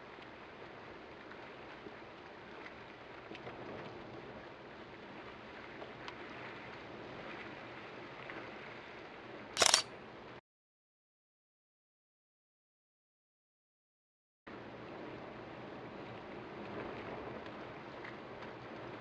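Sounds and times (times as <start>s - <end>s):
camera shutter clicks: 9.6s - 9.8s.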